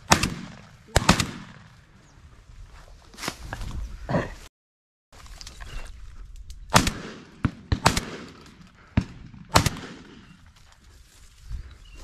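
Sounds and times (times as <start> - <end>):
shotgun shots: 0.0 - 1.7, 6.7 - 10.4.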